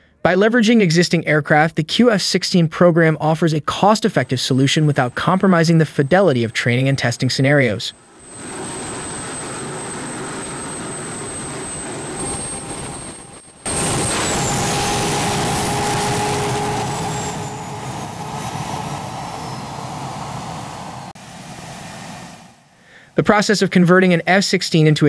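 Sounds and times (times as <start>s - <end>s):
jet engine rushing and whining: 7.9s - 22.7s.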